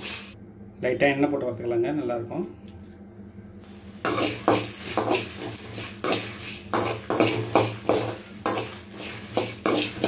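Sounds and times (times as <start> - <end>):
metal spatula scraping a pan: 4.0 - 10.0.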